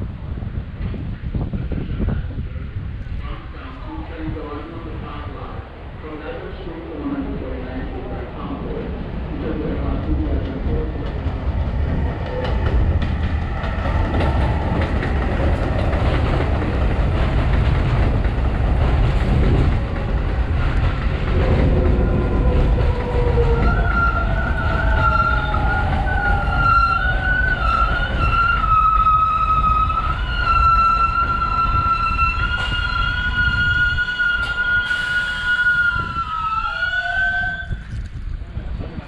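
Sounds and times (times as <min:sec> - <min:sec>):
subway train rumbling: 0:00.0 - 0:39.0
train motor whine: 0:20.5 - 0:38.1
high wavering squeal: 0:23.2 - 0:37.9.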